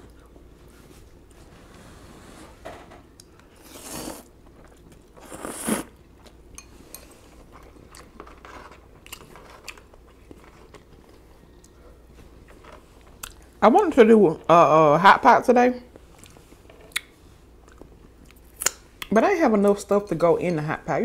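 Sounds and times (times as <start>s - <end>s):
noodles being slurped: 3.6s - 4.3s, 5.1s - 6.0s
soft chewing: 4.4s - 13.6s, 16.0s - 19.1s.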